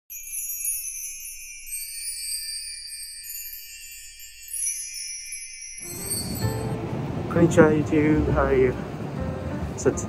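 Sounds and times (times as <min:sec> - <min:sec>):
sparkling chime and bell shimmer: 0:00.1 - 0:06.8.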